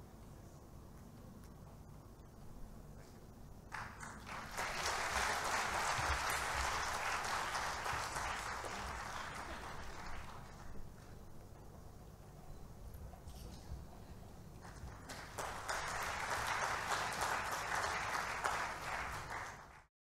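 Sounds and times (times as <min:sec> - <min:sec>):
audience applauding: 0:03.7 - 0:11.0, 0:14.6 - 0:19.9.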